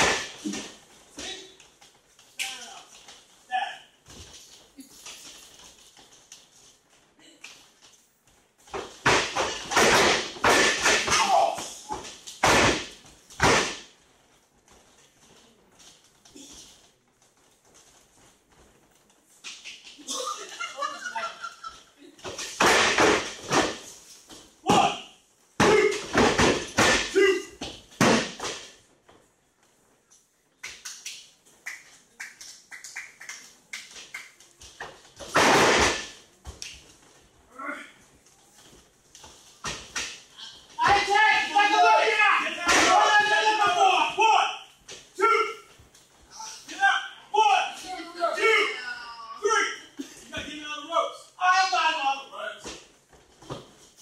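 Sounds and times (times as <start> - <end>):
bodies slamming onto ring canvas: 28.0 - 28.8.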